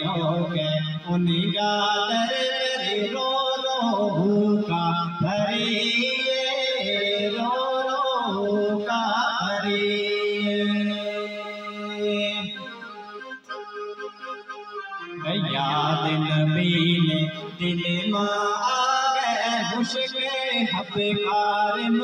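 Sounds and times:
man singing devotional song: 0:00.0 - 0:13.2, 0:15.0 - 0:22.0
electronic keyboard sustained notes: 0:09.4 - 0:22.0.

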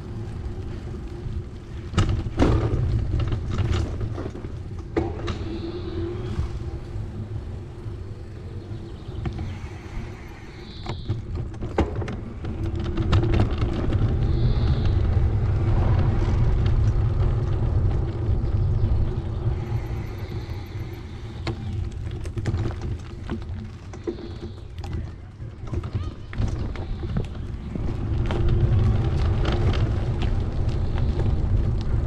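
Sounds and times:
wind on microphone: 0:00.0 - 0:25.0
bicycle tyres on path: 0:00.0 - 0:32.0.

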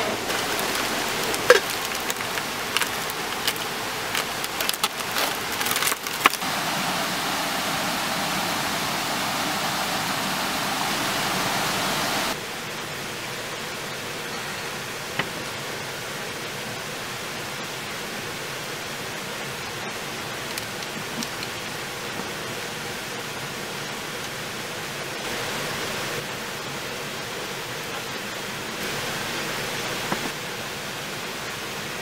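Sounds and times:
heavy rain pouring: 0:00.0 - 0:32.0
foil crinkling: 0:00.3 - 0:06.4, 0:20.4 - 0:21.6.

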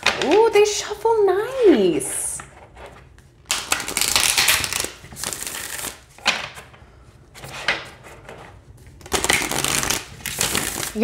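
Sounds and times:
cards riffle-shuffling: 0:03.5 - 0:06.0, 0:09.0 - 0:11.0.

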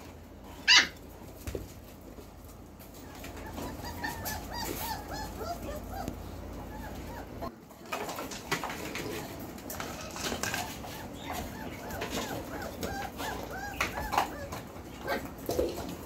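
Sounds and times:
puppies squeaking and whining: 0:00.5 - 0:01.0, 0:02.8 - 0:07.6, 0:09.7 - 0:16.0.

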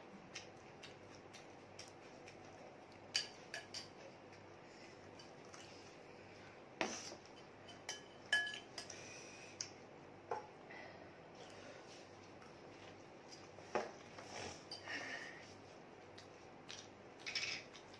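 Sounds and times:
metal spoon clinking on glass bowl: 0:07.7 - 0:08.9.

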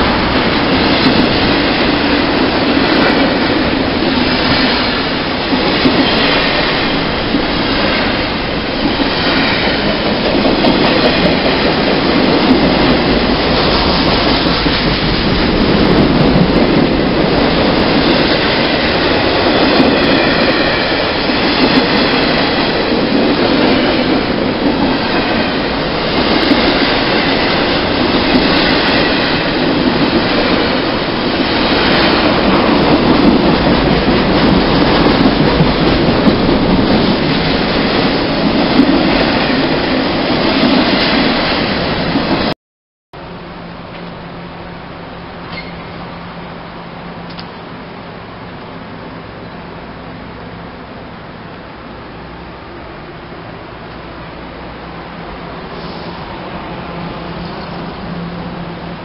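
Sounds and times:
train wheels rumbling on rails: 0:00.0 - 0:42.6, 0:43.2 - 0:59.0
faint high squeal: 0:45.5 - 0:46.0.

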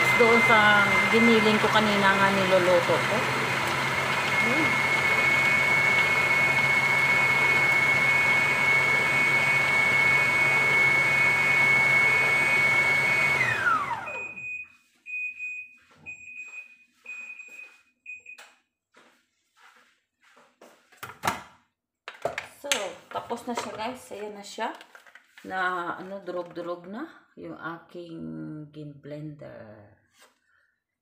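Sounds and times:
food processor motor whining: 0:00.0 - 0:14.5.

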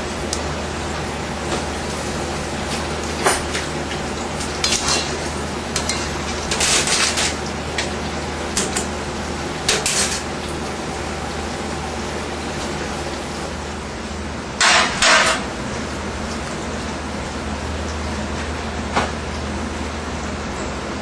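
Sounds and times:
kitchen utensils clattering: 0:04.4 - 0:07.4, 0:09.6 - 0:10.3, 0:14.6 - 0:15.5.

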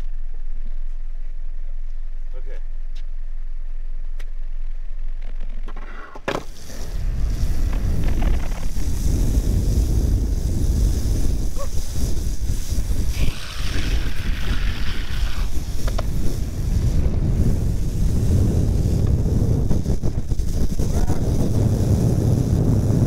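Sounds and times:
longboard wheels rolling on wet asphalt: 0:05.0 - 0:23.0
skateboard sliding hiss: 0:05.9 - 0:23.0
wind rushing over microphone: 0:06.3 - 0:23.0.

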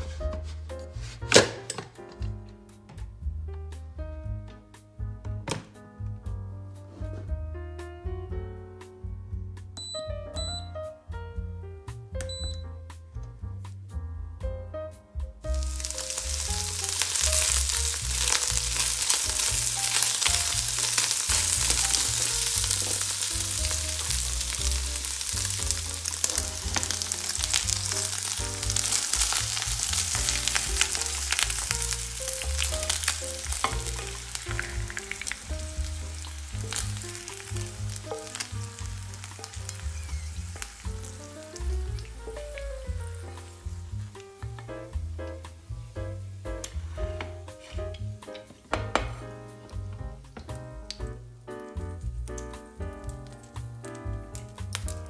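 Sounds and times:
chicken sizzling in a pan: 0:15.5 - 0:50.6, 0:51.7 - 0:55.0.

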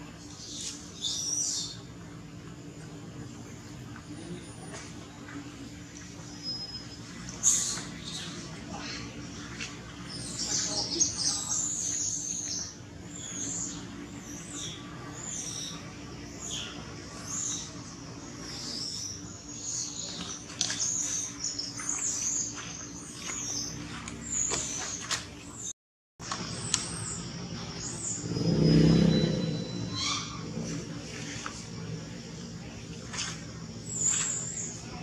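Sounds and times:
low steady hum: 0:00.0 - 0:35.0
high chirping animal calls: 0:26.9 - 0:30.9.

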